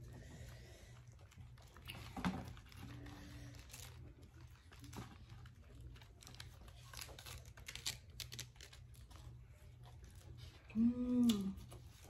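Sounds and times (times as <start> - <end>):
vegetables being chewed: 0.0 - 12.0
lettuce leaves tearing: 5.9 - 9.3
person humming: 10.7 - 11.6.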